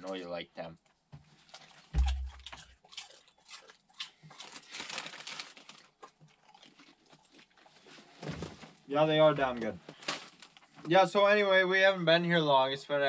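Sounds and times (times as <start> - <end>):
crunching of chips being chewed: 1.4 - 7.9
dull thump: 1.9 - 2.6
chip bag crinkling: 4.3 - 7.7.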